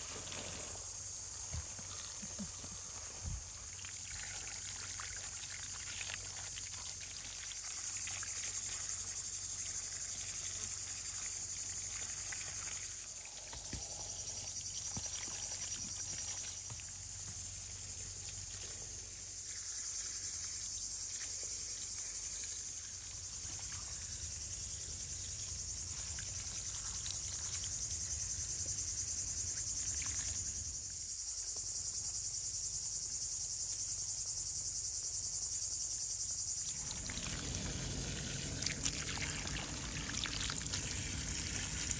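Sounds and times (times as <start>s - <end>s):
water pouring and splashing: 0.0s - 18.8s, 25.8s - 27.9s, 36.6s - 41.9s
crickets chirring: 0.0s - 41.9s.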